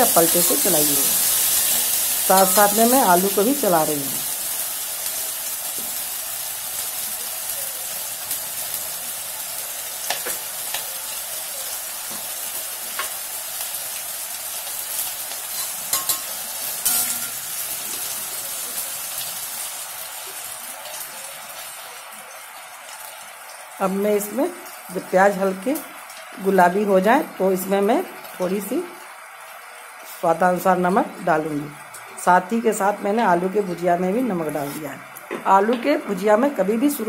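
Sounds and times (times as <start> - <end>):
potatoes and onions sizzling in oil: 0.0 - 37.0
metal spatula clinking on pan: 15.5 - 17.5.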